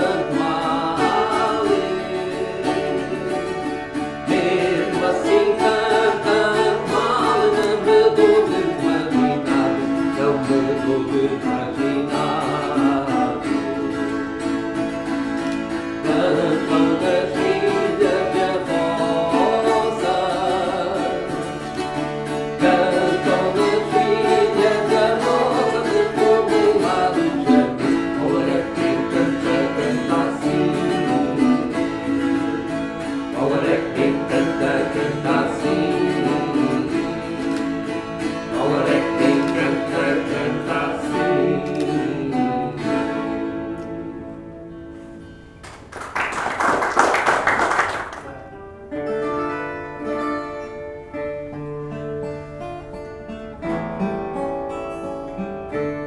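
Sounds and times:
man singing: 0.0 - 14.2, 16.0 - 21.6, 22.6 - 32.7, 33.3 - 37.5, 38.5 - 43.2
folk guitars playing: 0.0 - 56.0.

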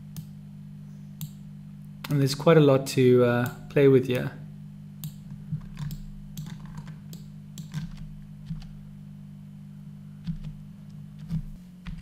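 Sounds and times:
steady low hum: 0.0 - 12.0
keyboard and mouse clicks: 5.0 - 8.8, 10.3 - 10.6, 11.2 - 12.0.

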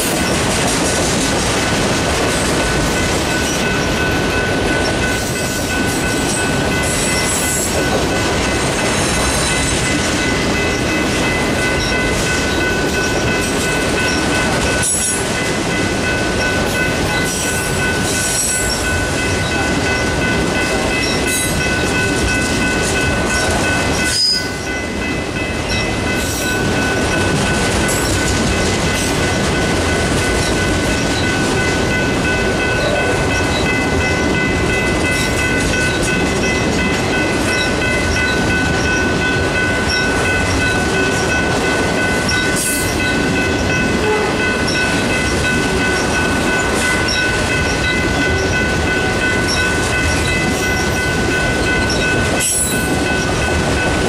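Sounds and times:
freight train wheels rumbling: 0.0 - 54.0.

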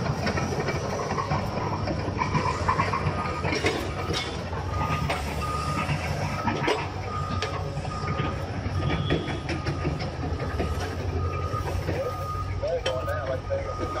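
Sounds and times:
bulldozer diesel engine rumbling: 0.0 - 14.0
backup alarm beeping: 3.1 - 14.0.

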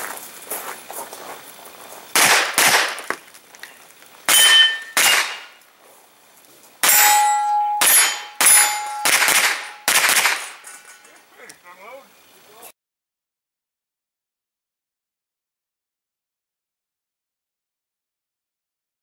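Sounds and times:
gunshots: 2.1 - 3.1, 4.3 - 5.6, 7.8 - 10.6
metallic ring of steel targets: 4.3 - 5.6, 6.8 - 11.2.

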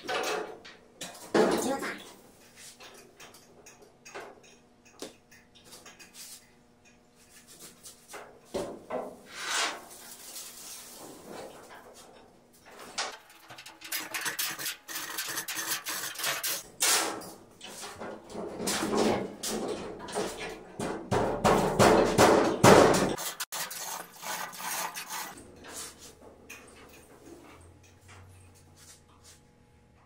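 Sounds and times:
metal clanking and knocking: 0.0 - 2.0, 16.4 - 23.2.

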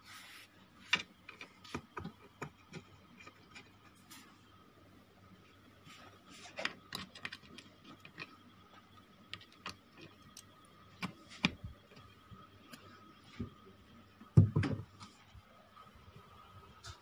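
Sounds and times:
cables being handled: 0.0 - 4.6, 5.3 - 14.0.

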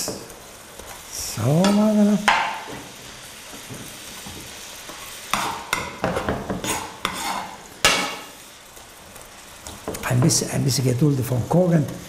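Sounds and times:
prawns sizzling in a frying pan: 0.0 - 12.0
knock on a pan: 2.3 - 2.6
spatula scraping a pan: 4.5 - 8.4.

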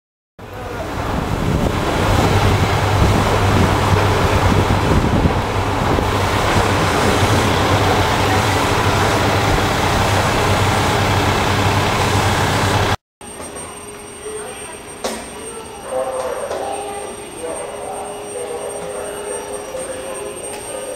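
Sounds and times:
loud rush of noise: 0.4 - 13.0.

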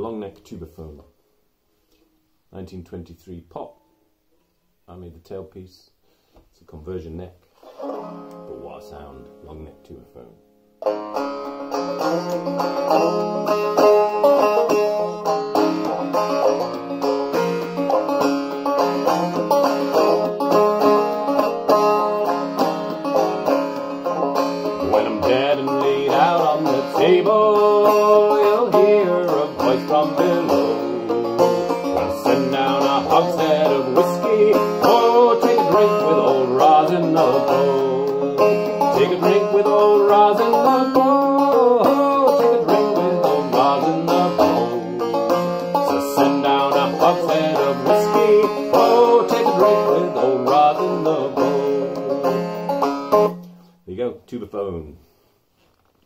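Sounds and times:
banjo plucked and brushed: 7.4 - 53.7
man singing: 12.0 - 13.4, 24.8 - 52.2.

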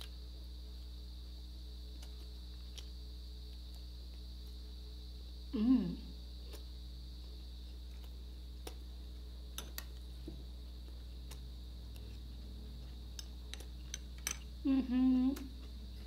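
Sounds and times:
low background hum: 0.0 - 16.0
person humming mm while chewing: 5.5 - 6.6, 14.6 - 16.0.

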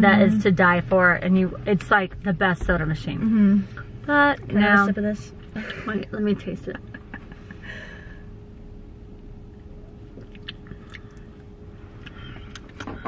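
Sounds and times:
low steady hum: 0.0 - 13.0
mouth clicks and chewing: 10.1 - 11.4, 12.0 - 12.9.

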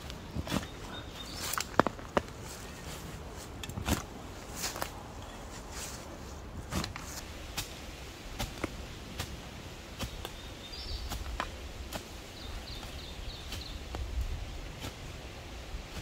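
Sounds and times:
shovel chopping into soil: 3.7 - 4.9.

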